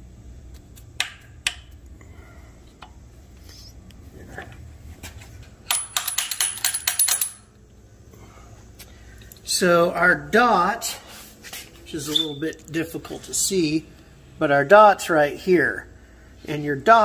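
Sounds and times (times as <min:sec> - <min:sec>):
light metal clinks: 0:05.7 - 0:07.6.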